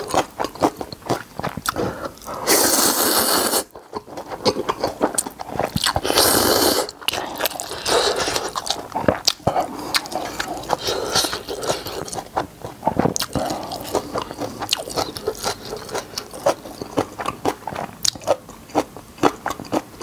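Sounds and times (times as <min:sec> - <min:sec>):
wet chewing: 0:00.0 - 0:20.0
slurping noodles: 0:01.6 - 0:12.3.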